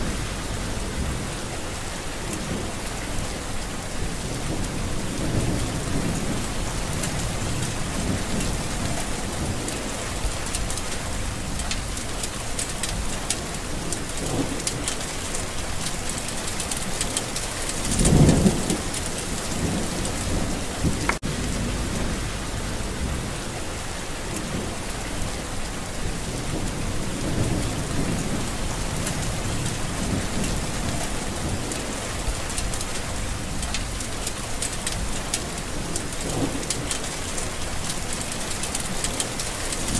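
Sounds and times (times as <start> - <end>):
low rumbling: 0.0 - 1.6, 18.0 - 25.2
steady rain: 0.0 - 39.9.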